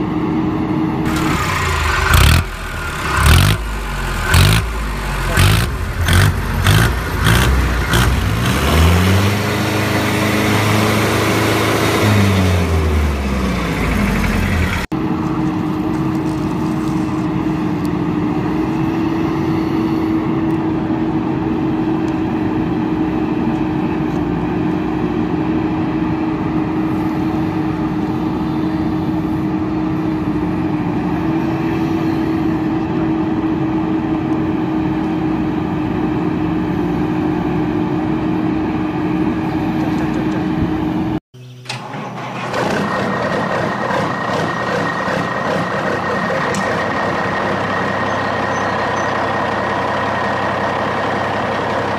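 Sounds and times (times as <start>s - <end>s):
steady engine drone: 0.0s - 51.9s
vehicle engine revving: 1.1s - 14.9s.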